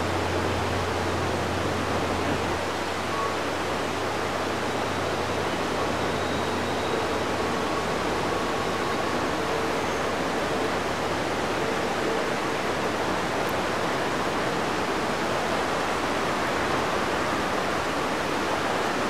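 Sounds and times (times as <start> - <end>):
river rushing: 0.0 - 19.0.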